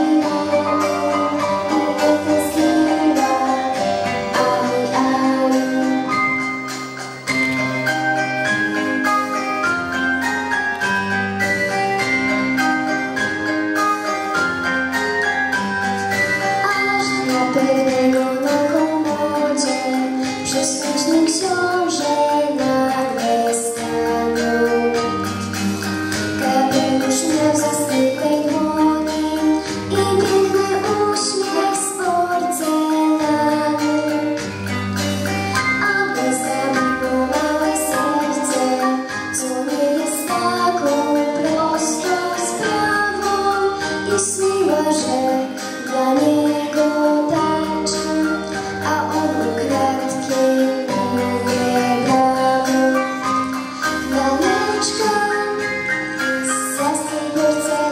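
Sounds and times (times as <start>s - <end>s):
girl singing into microphone: 0.0s - 6.4s, 16.6s - 25.5s, 26.3s - 34.5s, 35.6s - 57.9s
backing track with bass line: 0.0s - 57.9s.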